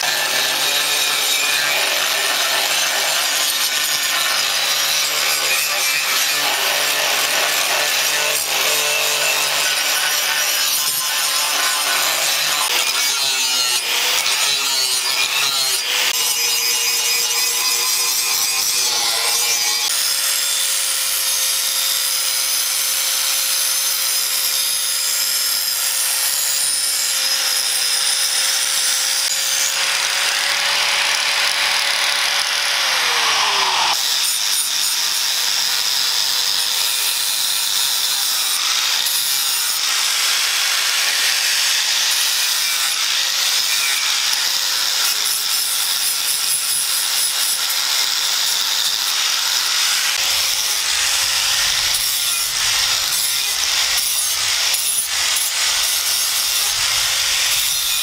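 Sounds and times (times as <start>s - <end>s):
angle grinder grinding steel: 0.0s - 58.0s.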